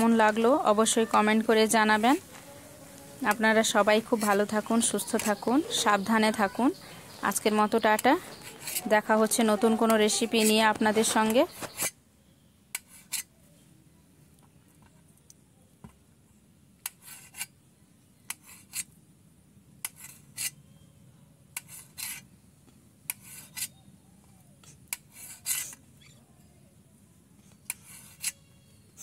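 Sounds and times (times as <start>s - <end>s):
knife scraping on steel plate: 8.3s - 8.9s, 12.8s - 13.3s, 19.8s - 20.6s, 21.6s - 22.2s, 23.1s - 23.8s, 24.7s - 25.8s, 27.7s - 28.5s.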